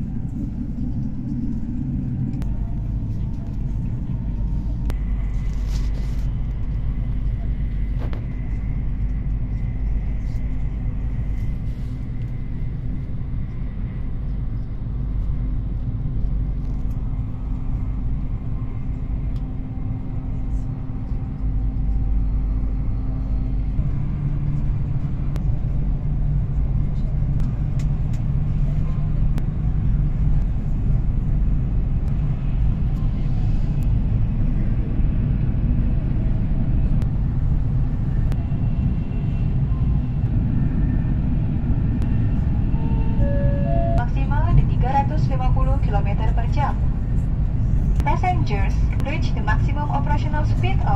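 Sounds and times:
train cabin rumble: 0.0s - 50.9s
faint humming tone: 42.0s - 44.7s.

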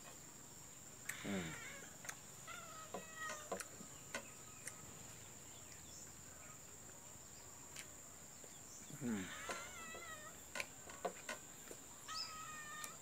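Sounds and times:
short bird calls: 12.0s - 13.0s.

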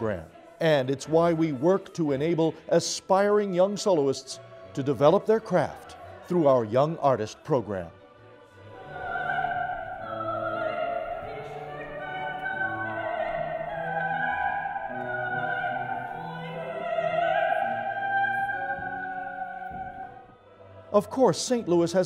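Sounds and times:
classical vocal ensemble singing: 0.0s - 22.0s
soprano holding long notes: 8.6s - 22.0s.

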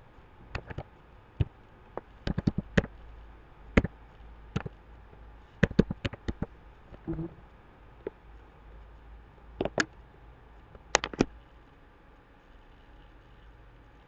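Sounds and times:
keyboard typing clicks: 0.5s - 0.9s, 2.2s - 2.9s, 5.6s - 6.5s, 9.6s - 9.9s, 10.9s - 11.3s.

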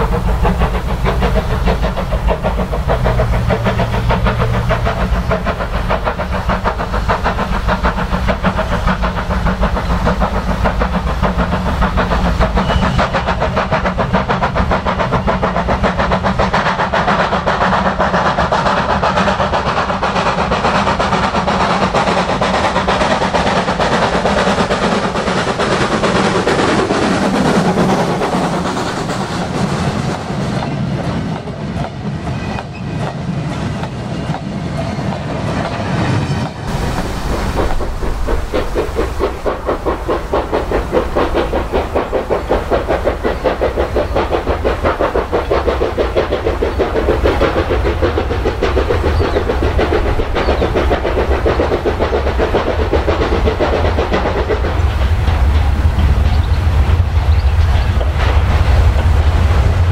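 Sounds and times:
steam locomotive exhaust beats: 0.0s - 59.9s
wagon wheels clicking over rail joints: 36.7s - 59.1s.

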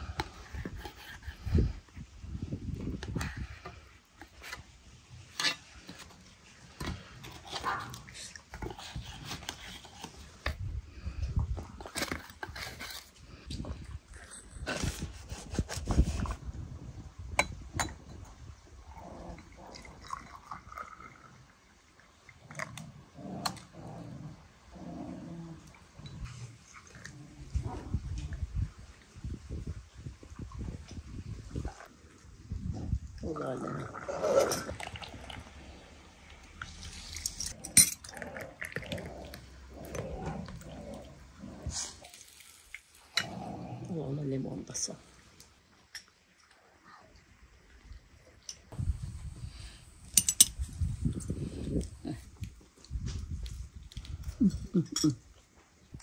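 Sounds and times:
tea pouring into a glass: 19.7s - 21.3s, 34.7s - 35.5s
glass clinking: 54.8s - 55.2s.

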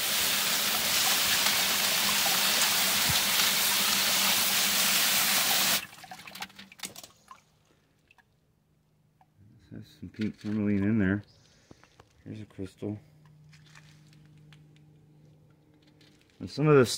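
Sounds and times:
hose nozzle spraying water: 0.0s - 6.5s.

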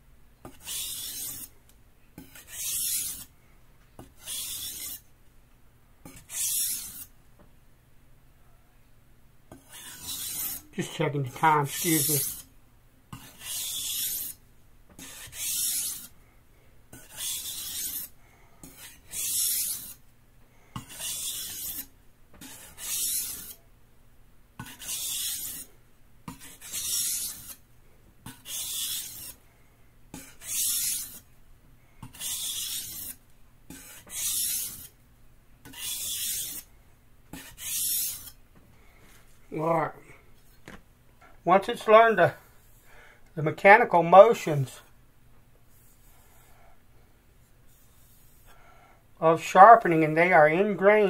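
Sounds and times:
knife scraping on whetstone: 0.5s - 1.5s, 2.2s - 3.3s, 4.0s - 5.0s, 6.0s - 7.1s, 9.5s - 12.5s, 13.1s - 14.4s, 15.0s - 16.1s, 16.9s - 20.0s, 20.8s - 23.6s, 24.6s - 25.7s, 26.3s - 27.6s, 28.2s - 29.4s, 30.1s - 31.3s, 32.0s - 35.0s, 35.6s - 36.7s, 37.3s - 38.4s.

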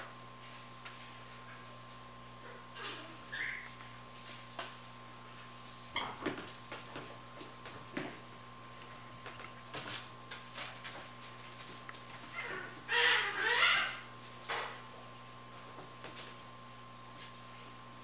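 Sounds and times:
paws and toys tapping on floor: 6.0s - 8.2s
puppy crying: 12.3s - 14.1s.

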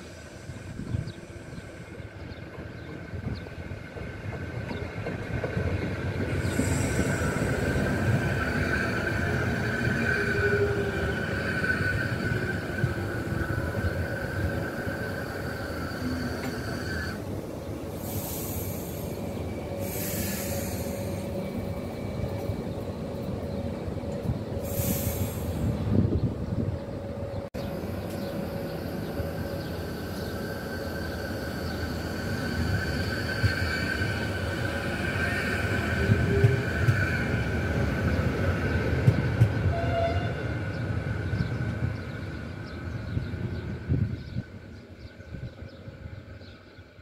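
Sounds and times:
train braking with rumble: 0.0s - 44.5s
short air hisses: 18.0s - 21.4s, 24.6s - 25.8s.

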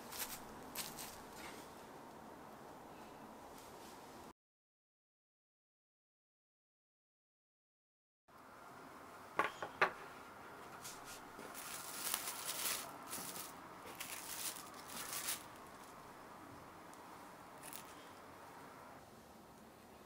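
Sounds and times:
cling film crinkling: 0.0s - 1.5s, 11.4s - 16.0s.

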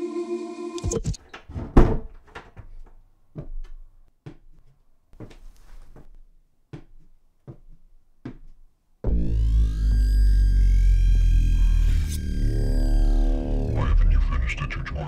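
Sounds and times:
knocks and thumps: 0.8s - 3.8s.

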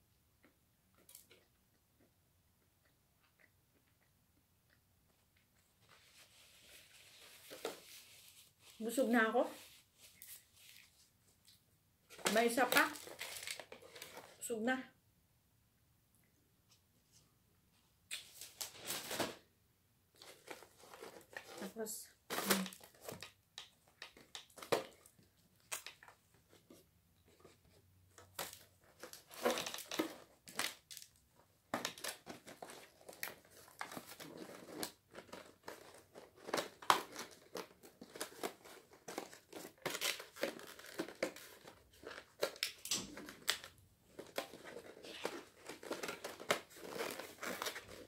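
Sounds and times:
aluminium foil crinkling: 12.2s - 14.4s, 20.2s - 26.2s, 31.8s - 48.0s.

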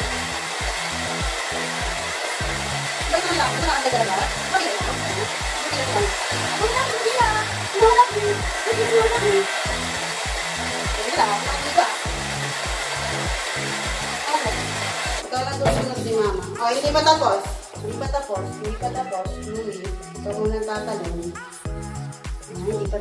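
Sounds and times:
background music with beat: 0.0s - 11.2s, 12.0s - 23.0s
hair dryer blowing: 0.0s - 18.2s.

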